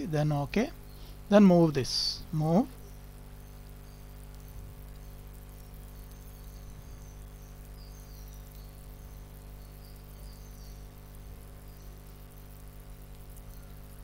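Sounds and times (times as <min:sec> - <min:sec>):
electrical hum and hiss: 0:00.0 - 0:14.0.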